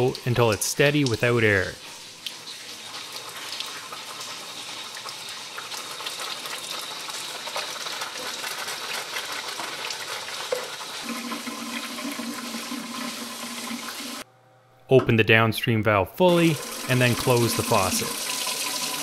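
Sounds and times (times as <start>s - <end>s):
faucet water splashing into sink: 0.0s - 14.2s, 16.4s - 19.0s.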